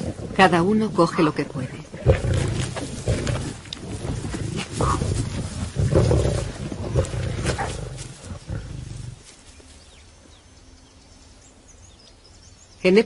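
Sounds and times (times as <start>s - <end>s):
lions growling: 0.0s - 9.5s.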